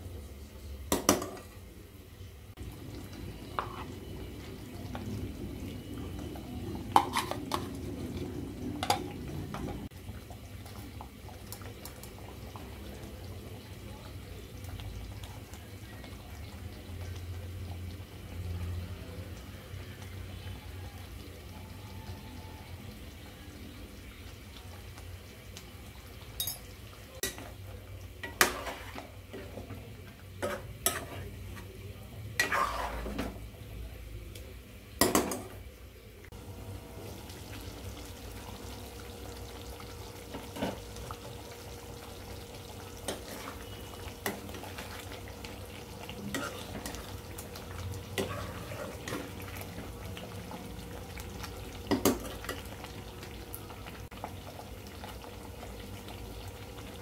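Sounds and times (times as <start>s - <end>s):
gravy sizzling: 0.0s - 57.0s
spatula scraping metal pan: 32.4s - 33.3s.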